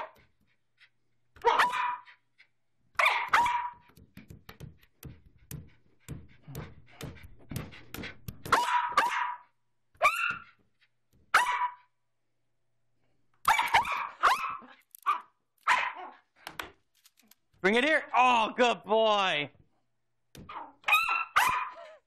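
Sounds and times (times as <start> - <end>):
small dog barking: 1.4 - 2.2, 3.0 - 3.8, 8.5 - 10.5, 11.3 - 11.9, 13.5 - 16.2, 20.5 - 22.0.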